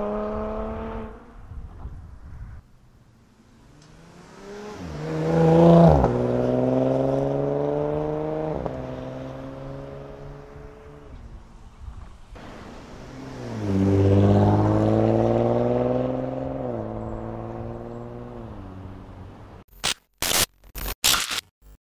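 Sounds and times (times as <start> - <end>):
car exhaust accelerating past: 3.6 - 11.1, 12.4 - 19.0.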